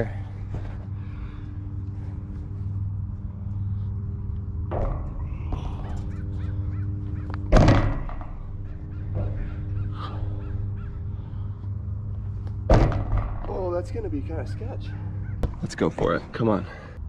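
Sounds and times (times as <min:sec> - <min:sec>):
feet landing on metal bench: 0:04.7 - 0:06.2, 0:07.4 - 0:08.4, 0:12.7 - 0:13.5.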